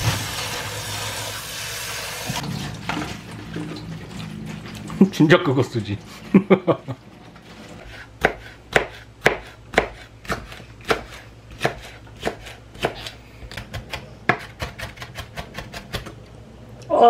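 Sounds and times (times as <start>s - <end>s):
knife chopping on cutting board: 7.8s - 16.2s.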